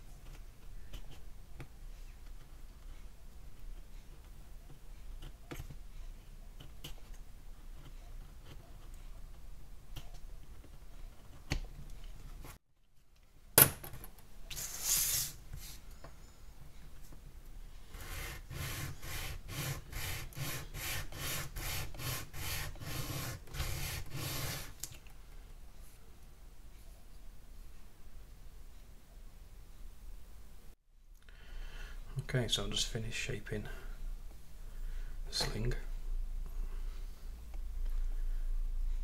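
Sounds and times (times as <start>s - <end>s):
wooden stick rubbed on sandpaper: 17.9s - 24.8s.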